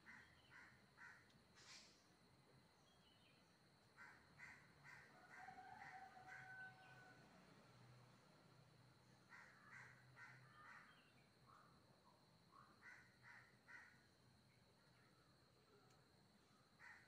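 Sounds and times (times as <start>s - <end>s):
faint bird calls: 0.0s - 2.0s, 9.3s - 11.7s, 12.5s - 14.0s, 16.5s - 17.0s.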